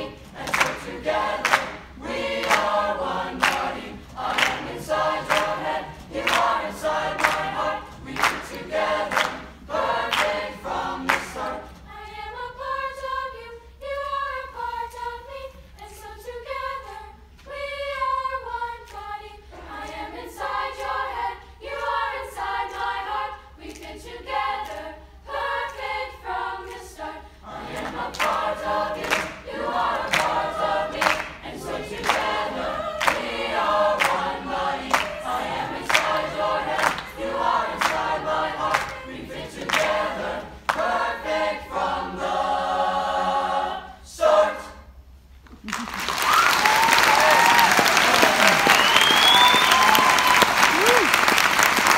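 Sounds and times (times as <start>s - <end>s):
choir singing in harmony: 0.0s - 45.0s
hand claps: 0.4s - 2.8s, 3.4s - 9.5s, 10.1s - 10.4s, 11.0s - 11.5s, 27.8s - 28.4s, 29.0s - 29.4s, 30.1s - 30.4s, 31.0s - 32.4s, 33.0s - 33.3s, 34.0s - 34.3s, 34.9s - 35.2s, 35.8s - 37.2s, 38.7s - 39.0s, 39.6s - 40.0s, 45.5s - 51.9s.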